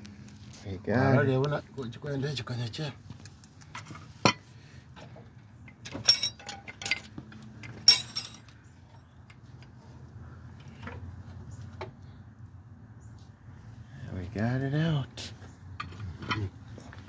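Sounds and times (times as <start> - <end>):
steel tools clinking: 5.7 - 9.0.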